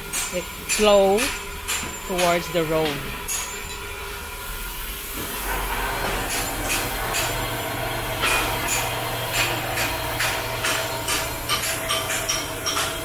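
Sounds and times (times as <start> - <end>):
hammer strikes on metal: 0.1 - 3.6, 6.0 - 7.5, 8.2 - 13.0
metal-on-metal knocks: 8.2 - 13.0.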